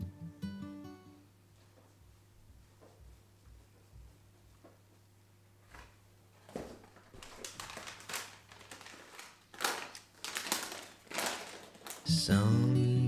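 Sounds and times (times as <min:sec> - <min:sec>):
wrapping paper rustling: 0:05.8 - 0:12.3.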